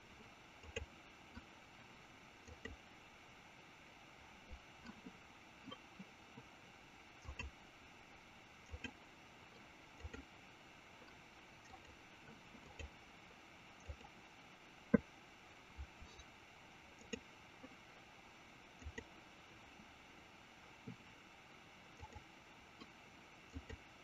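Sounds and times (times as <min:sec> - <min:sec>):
faint microphone hiss: 0:00.0 - 0:24.0
computer mouse clicks: 0:00.6 - 0:01.5, 0:02.4 - 0:02.8, 0:07.2 - 0:07.6, 0:08.6 - 0:09.0, 0:10.0 - 0:10.3, 0:11.0 - 0:13.0, 0:13.8 - 0:14.2, 0:15.8 - 0:16.3, 0:17.0 - 0:17.3, 0:18.8 - 0:19.1, 0:22.0 - 0:23.8.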